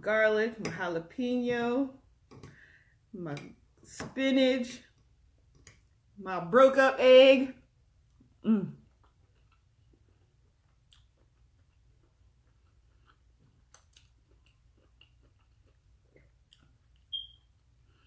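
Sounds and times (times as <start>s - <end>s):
person chewing food: 8.8s - 18.0s.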